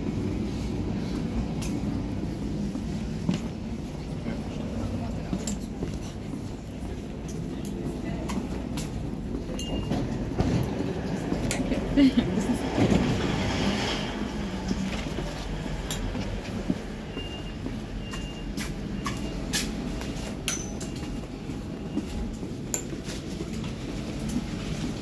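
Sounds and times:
train interior rumble: 0:00.0 - 0:25.0.

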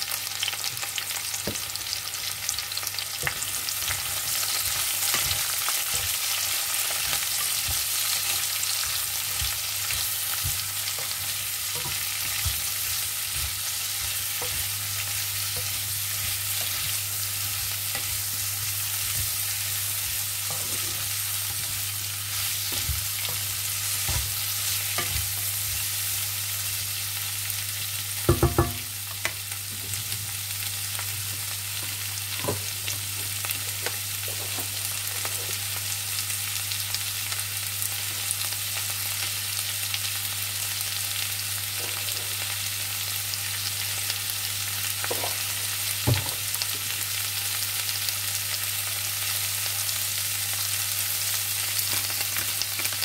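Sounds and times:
vegetables sizzling in oil: 0:00.0 - 0:53.0
wooden spatula stirring and tapping: 0:03.2 - 0:21.8
knocks against pan: 0:28.3 - 0:28.8.

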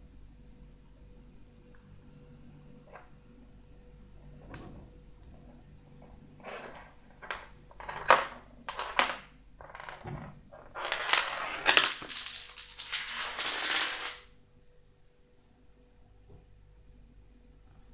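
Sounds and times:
walnut clacking on tile floor: 0:06.4 - 0:14.3.

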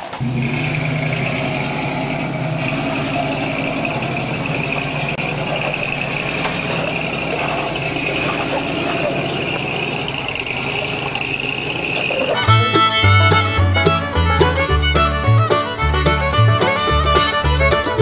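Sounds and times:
suv engine running under load: 0:00.0 - 0:18.0
high-pitched whine: 0:00.1 - 0:12.4.

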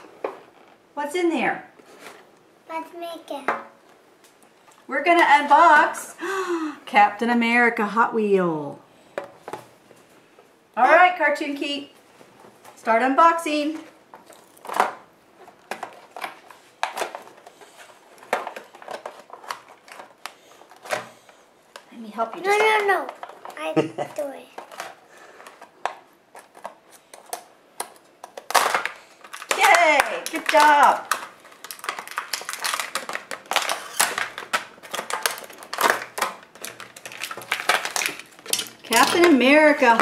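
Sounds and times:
plastic blister pack crackling: 0:24.4 - 0:40.0.

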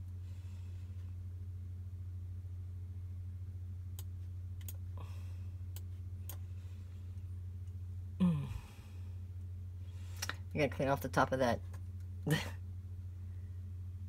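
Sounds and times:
electrical hum: 0:00.0 - 0:14.0
sighing voice: 0:08.2 - 0:08.9.

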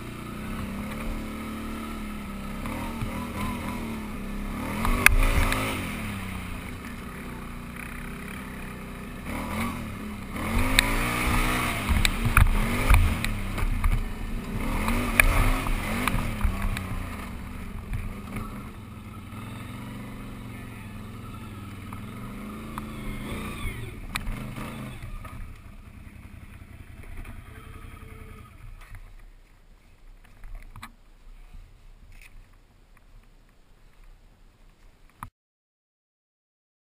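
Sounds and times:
atv engine revving: 0:00.0 - 0:29.2.

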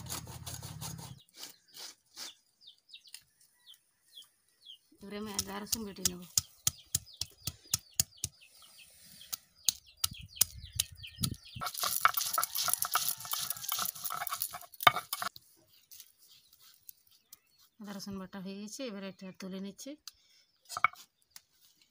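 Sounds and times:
stone tapping on ginger and garlic: 0:05.3 - 0:08.4, 0:09.6 - 0:15.3
stone-on-stone rasping and knocking: 0:10.4 - 0:15.4, 0:20.7 - 0:21.1.

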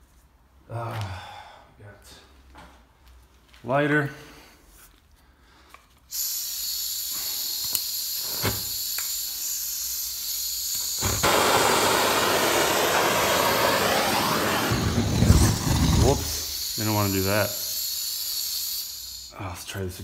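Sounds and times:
gas hissing from torch nozzle: 0:06.1 - 0:19.4
torch lighter clicks: 0:07.5 - 0:09.3
torch flame rushing: 0:10.8 - 0:17.2.

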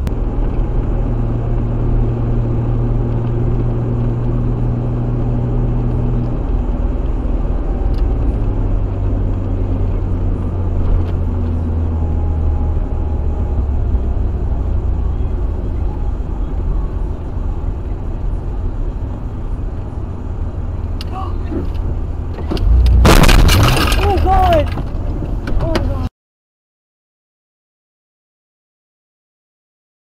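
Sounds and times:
pickup engine running: 0:00.0 - 0:26.1
road noise: 0:00.0 - 0:26.1
turn signal stalk click: 0:05.8 - 0:09.7, 0:20.8 - 0:23.0.

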